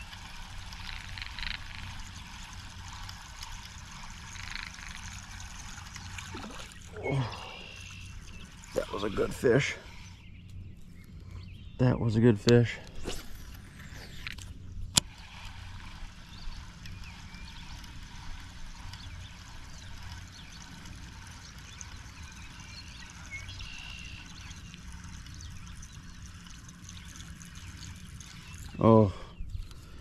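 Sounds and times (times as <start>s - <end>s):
fishing reel whirring: 0.0s - 10.2s, 13.1s - 28.9s
fishing reel click: 0.1s - 5.8s
faint bird chirps: 6.3s - 12.7s, 18.8s - 30.0s.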